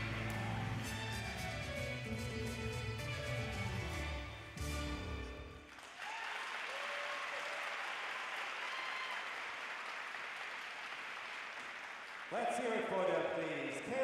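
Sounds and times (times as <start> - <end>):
voices cheering: 0.0 - 1.4, 6.0 - 9.6
audience applauding: 0.0 - 1.9, 5.6 - 13.2.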